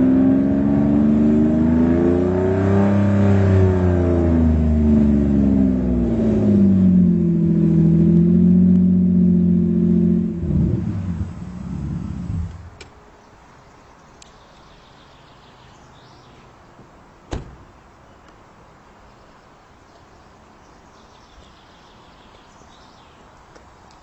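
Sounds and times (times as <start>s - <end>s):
car engine running: 3.5s - 12.8s.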